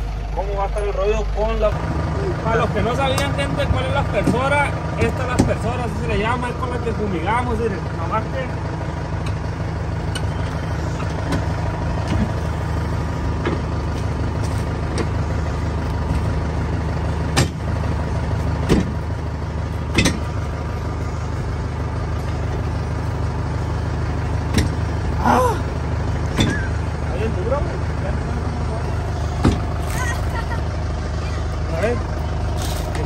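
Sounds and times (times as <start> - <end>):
tractor engine idling: 0.0 - 33.0
sharp knocks: 19.9 - 20.3.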